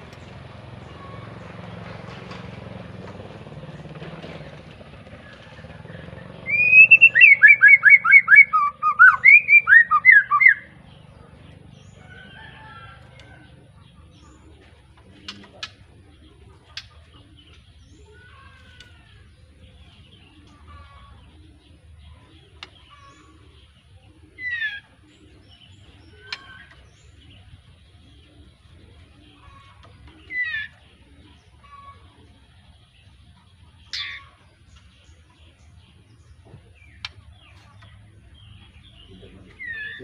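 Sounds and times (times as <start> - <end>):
faint bird calls: 0.0 - 40.0
bird singing quick notes: 6.4 - 10.7.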